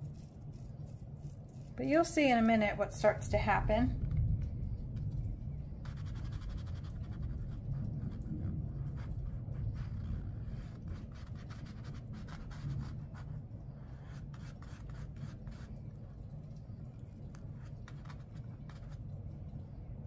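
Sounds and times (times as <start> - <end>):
paintbrush dabbing on paper: 0.0 - 2.0, 5.8 - 16.0, 17.3 - 19.0
low steady rumble: 0.0 - 20.0.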